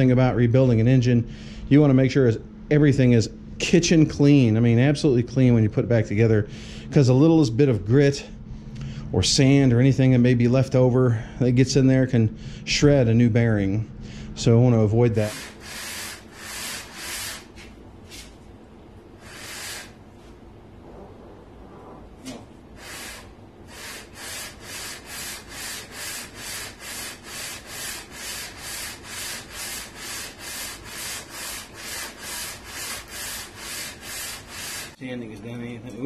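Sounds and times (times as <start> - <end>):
metal part sanding on sandpaper: 15.1 - 17.6, 19.2 - 20.0, 22.8 - 35.0.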